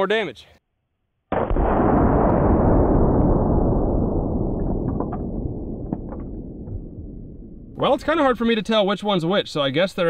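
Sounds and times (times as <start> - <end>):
rifle shot deep boom: 1.3 - 7.9.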